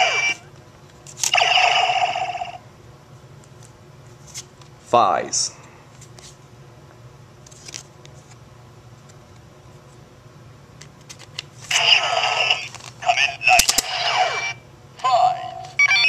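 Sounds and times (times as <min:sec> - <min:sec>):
toy belt electronic voice: 0:00.0 - 0:00.4, 0:11.7 - 0:16.0.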